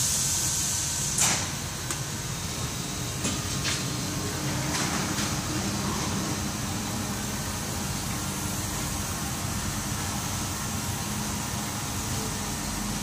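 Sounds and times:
factory machines humming: 0.0 - 13.0.

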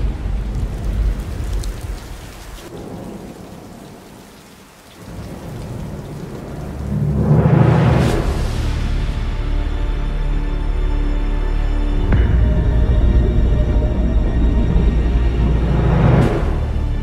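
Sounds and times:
thunder rumble: 0.0 - 10.0
rain: 0.0 - 17.0.

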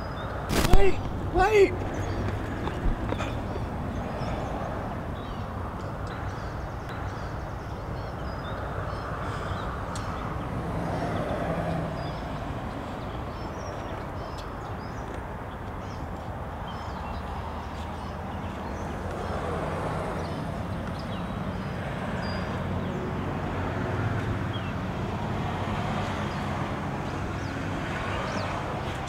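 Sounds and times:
road traffic rumble: 0.0 - 29.0
faint bird calls: 0.6 - 6.6
vehicle passing: 0.8 - 6.9, 9.0 - 15.4.

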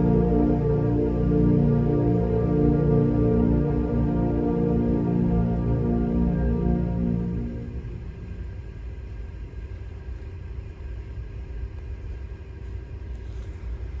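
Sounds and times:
concert band chord: 0.0 - 8.4
low room noise rumble: 0.0 - 14.0.

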